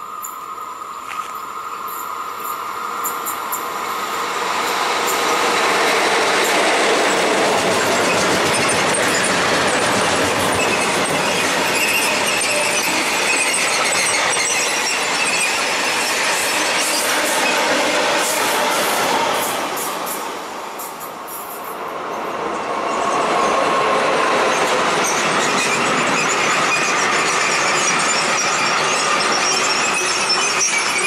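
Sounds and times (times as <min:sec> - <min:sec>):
train wheels rumbling on rails: 0:00.0 - 0:31.0
wheel squeal: 0:05.0 - 0:19.0, 0:24.6 - 0:31.0.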